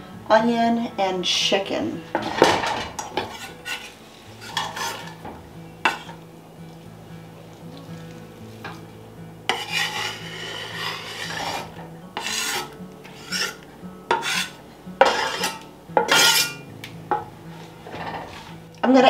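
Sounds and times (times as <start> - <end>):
knife scraping cutting board: 3.1 - 5.2, 9.5 - 16.6.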